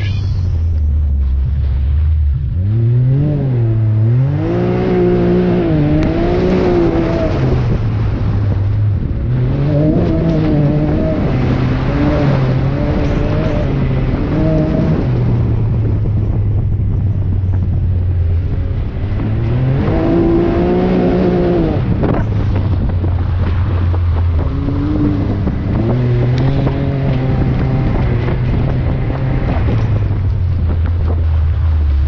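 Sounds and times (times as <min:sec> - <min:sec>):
off-road vehicle engine revving: 0:00.0 - 0:32.0.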